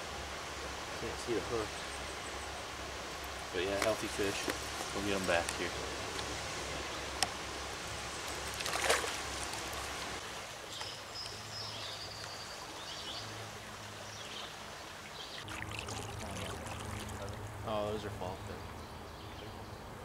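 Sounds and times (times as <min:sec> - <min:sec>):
stream rushing: 0:00.0 - 0:18.7
sharp splash: 0:08.5 - 0:10.0, 0:15.3 - 0:17.5.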